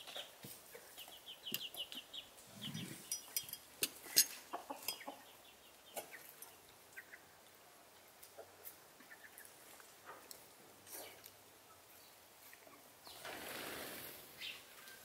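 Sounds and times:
chickens clucking: 0.1s - 10.4s.

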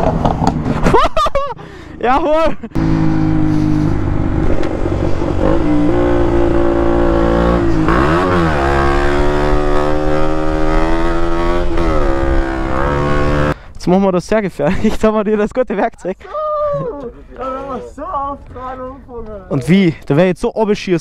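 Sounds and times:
loud motorcycle engine: 2.8s - 13.6s.

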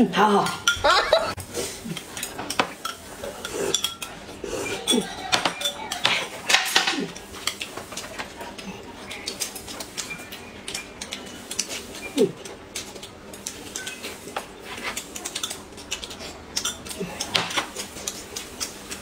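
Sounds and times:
chopsticks clinking on dishes: 1.9s - 8.1s, 10.7s - 14.2s, 14.8s - 19.0s
chewing: 7.1s - 19.0s.

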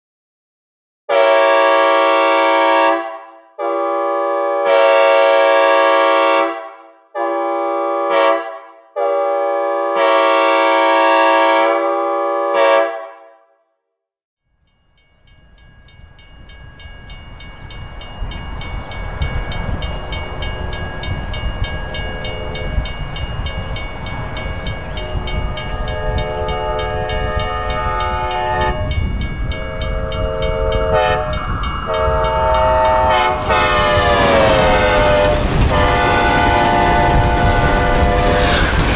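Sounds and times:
train horn chord blasts: 1.1s - 13.6s, 24.9s - 38.8s
train rumble: 15.3s - 38.9s.

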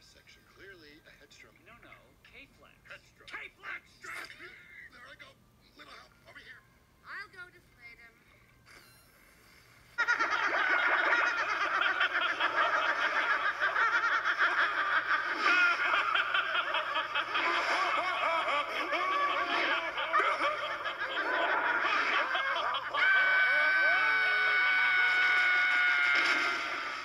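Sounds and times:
cartoon voices laughing: 10.0s - 26.8s.

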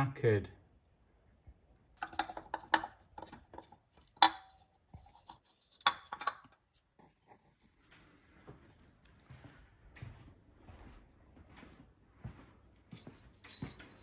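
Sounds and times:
metal clinks and scrapes: 13.3s - 14.0s.

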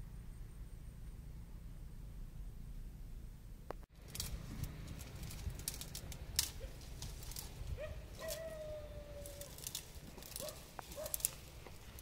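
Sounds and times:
steady low rumble: 0.0s - 12.0s
twigs snapping and crackling: 3.9s - 12.0s.

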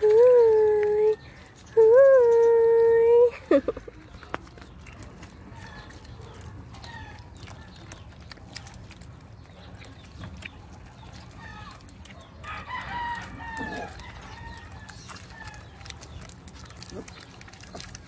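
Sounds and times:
puppies lapping milk: 0.0s - 18.0s
rooster crowing: 12.4s - 14.8s.

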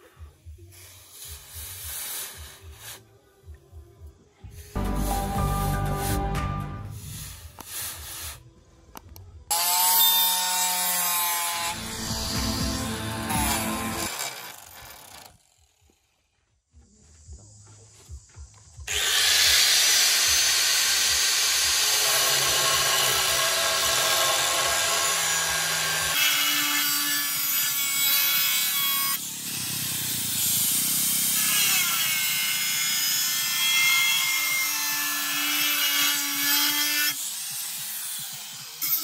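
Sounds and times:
angle grinder grinding steel: 9.5s - 16.0s, 18.9s - 39.0s.

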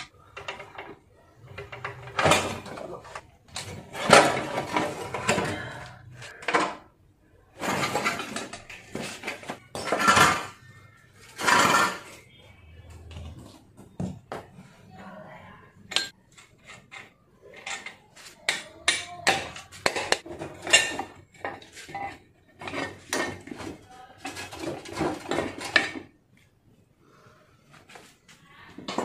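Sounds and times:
metal tools clanking: 15.9s - 26.1s.

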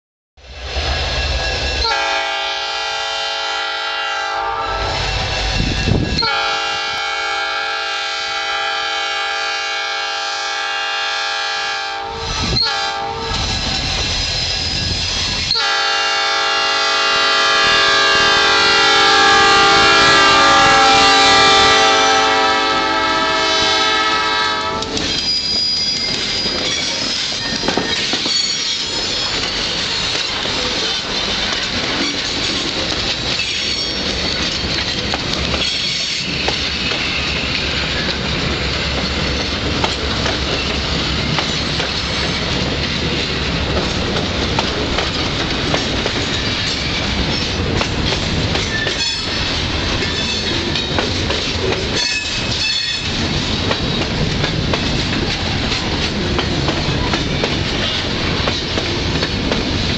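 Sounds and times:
locomotive horn blasts: 1.8s - 5.1s, 6.2s - 13.4s, 15.5s - 25.0s
train wheels clacking on rails: 24.6s - 59.9s.

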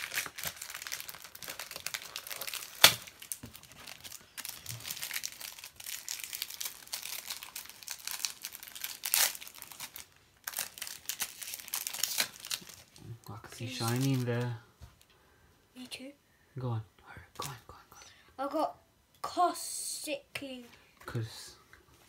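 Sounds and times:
foil wrapper crinkling and tearing: 0.0s - 13.0s, 13.7s - 14.5s.

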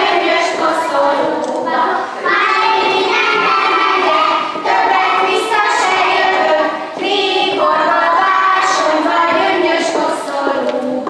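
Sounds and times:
children singing in unison: 0.0s - 11.0s.

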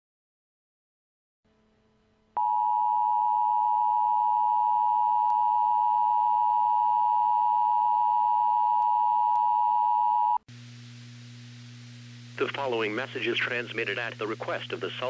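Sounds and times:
two-tone alarm: 2.4s - 10.4s.

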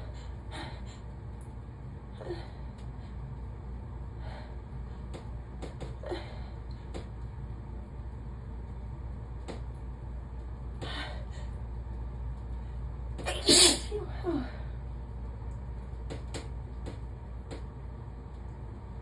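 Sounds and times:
person sneezing: 13.2s - 14.1s.

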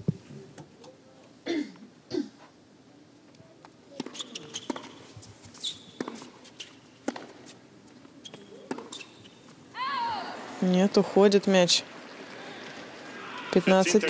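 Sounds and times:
shoe squeaks: 4.0s - 6.9s, 8.2s - 9.5s
racket striking ball: 7.0s - 7.4s, 8.7s - 9.0s.

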